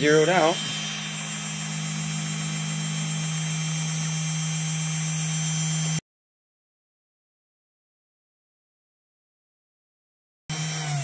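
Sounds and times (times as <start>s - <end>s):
router spindle motor humming: 0.0s - 6.0s, 10.5s - 11.0s.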